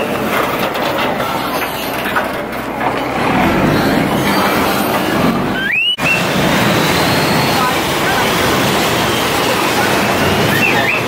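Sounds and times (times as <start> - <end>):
boat engine rumbling: 0.0 - 11.0
rising squeal: 3.3 - 8.3, 10.3 - 11.0.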